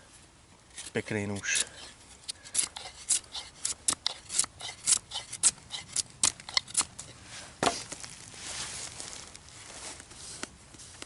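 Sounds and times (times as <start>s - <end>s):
knife shaving wood: 0.8s - 6.9s.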